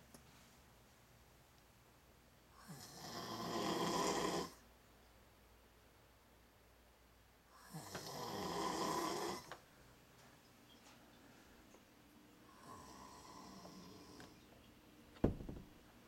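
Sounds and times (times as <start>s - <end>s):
man snoring loudly: 2.6s - 4.6s, 7.6s - 9.5s, 12.5s - 14.2s.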